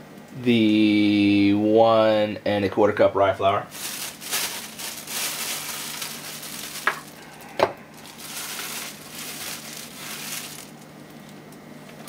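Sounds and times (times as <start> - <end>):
plastic bag crinkling: 3.7 - 11.6.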